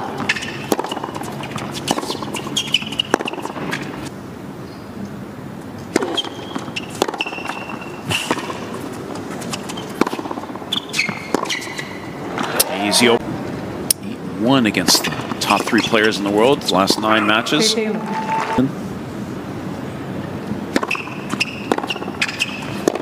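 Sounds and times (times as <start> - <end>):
racket hitting ball: 0.0 - 4.0, 5.9 - 8.8
shoe squeaks: 1.4 - 3.8, 6.1 - 8.3, 9.4 - 10.0, 10.7 - 12.0, 17.1 - 18.6, 20.9 - 22.7
crowd murmur: 17.0 - 18.8.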